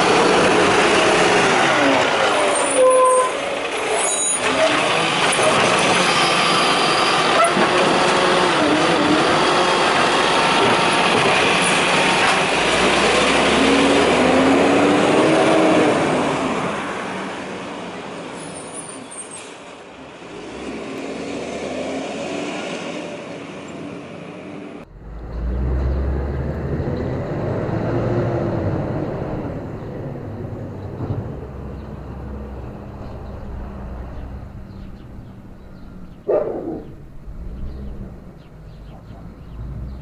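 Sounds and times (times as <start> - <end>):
rubbish truck engine running: 0.0 - 17.2, 24.8 - 40.0
engine whine rising and falling: 24.8 - 35.6.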